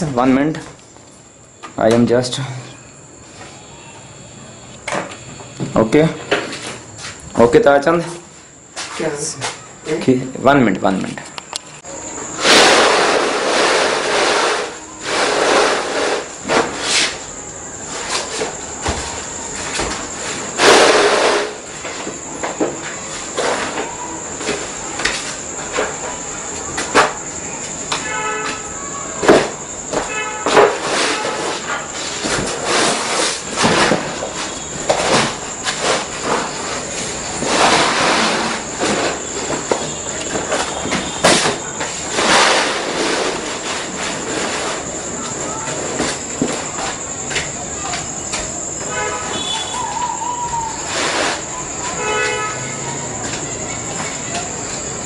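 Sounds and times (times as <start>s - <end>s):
loud crack: 12.4s - 16.8s, 20.6s - 21.7s, 41.2s - 43.5s
plastic sheet rustling and crackling: 12.4s - 17.2s, 30.5s - 47.1s.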